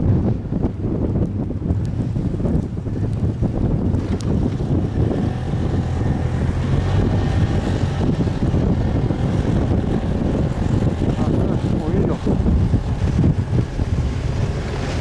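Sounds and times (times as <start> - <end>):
wind buffeting microphone: 0.0 - 15.0
snowmobile engine running: 3.9 - 15.0.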